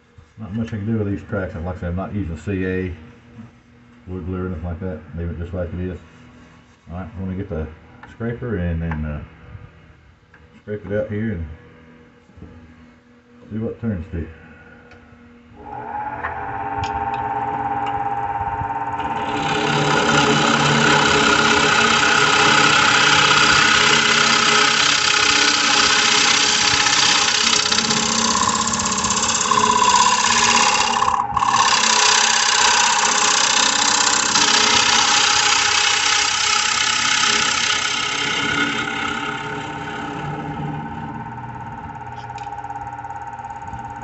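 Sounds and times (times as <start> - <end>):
wood lathe motor hum: 15.6 - 44.0.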